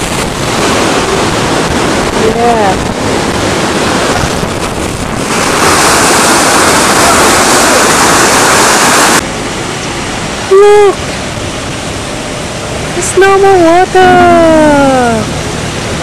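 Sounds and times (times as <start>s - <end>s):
water rushing through sluices: 0.0s - 16.0s
person crying out: 10.5s - 11.0s.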